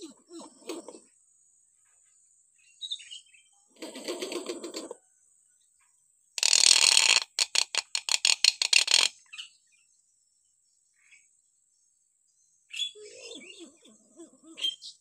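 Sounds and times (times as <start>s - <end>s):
bird chirps: 0.0s - 3.8s, 8.4s - 15.0s.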